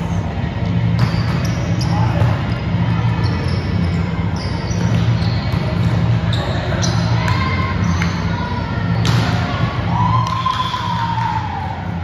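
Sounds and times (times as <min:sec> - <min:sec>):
steady low hum: 0:00.0 - 0:10.2
sneakers squeaking on court: 0:00.8 - 0:09.2.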